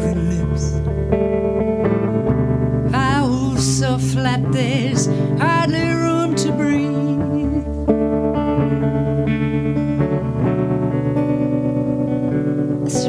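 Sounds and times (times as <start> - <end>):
woman singing with vibrato: 0.0 - 0.8, 2.9 - 7.7
strummed electric guitar: 0.0 - 13.0.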